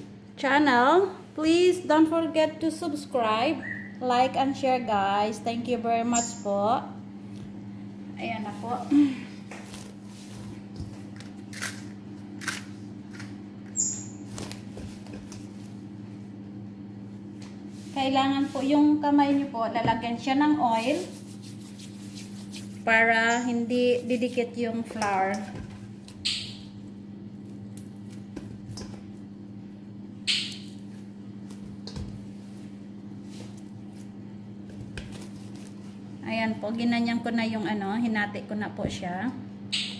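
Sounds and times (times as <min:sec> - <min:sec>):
steady low hum: 0:00.0 - 0:39.9
hands handling bread dough: 0:30.7 - 0:36.0.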